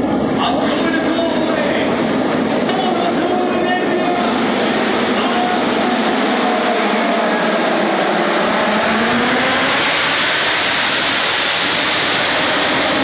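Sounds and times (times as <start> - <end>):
racing motorcycles accelerating past: 4.2 - 13.0.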